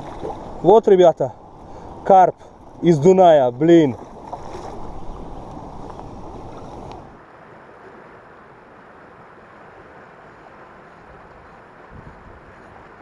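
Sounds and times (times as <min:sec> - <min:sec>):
river noise: 0:00.0 - 0:13.0
water churning and lapping: 0:00.0 - 0:13.0
wind on microphone: 0:11.0 - 0:13.0.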